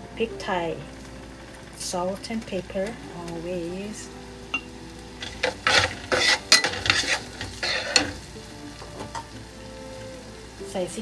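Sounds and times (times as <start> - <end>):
vegetables sizzling in oil: 0.0 - 11.0
wooden spatula scraping pan: 5.2 - 8.3.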